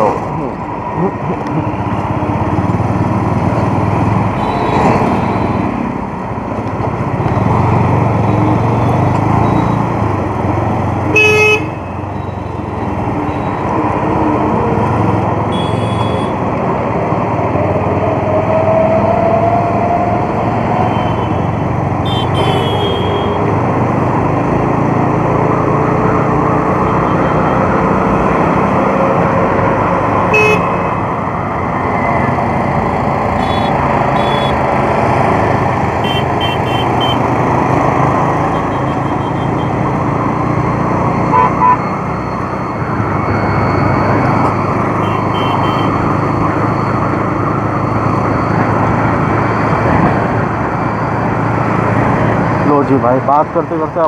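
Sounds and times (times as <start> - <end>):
wind and road noise: 0.0 - 54.0
vehicle horn toots: 22.0 - 23.4, 30.3 - 30.8, 33.4 - 34.6, 36.0 - 37.2, 41.3 - 41.8, 45.0 - 45.9.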